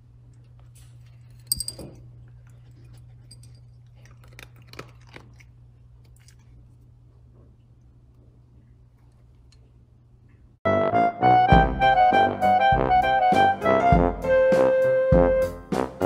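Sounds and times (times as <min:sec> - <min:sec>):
low steady hum: 0:00.0 - 0:10.6
dog crunching kibble: 0:00.4 - 0:06.8.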